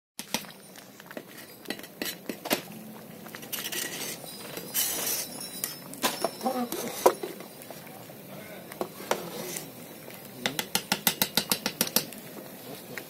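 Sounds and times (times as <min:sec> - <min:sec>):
swishing of stirred liquid: 0:06.6 - 0:10.3
metal ladle clinking against pot: 0:10.4 - 0:12.2.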